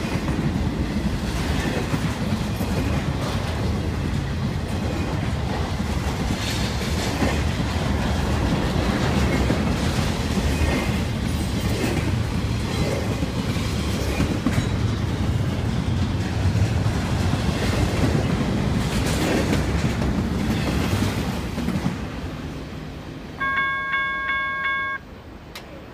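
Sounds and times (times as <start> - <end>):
loud bell ringing: 23.4 - 25.0.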